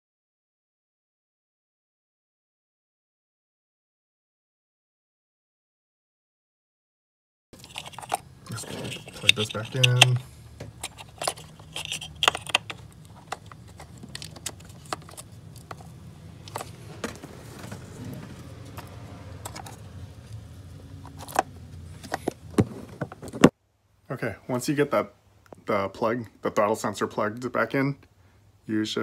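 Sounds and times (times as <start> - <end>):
plastic connector clicks and rattles: 8.9 - 10.2, 10.8 - 16.7.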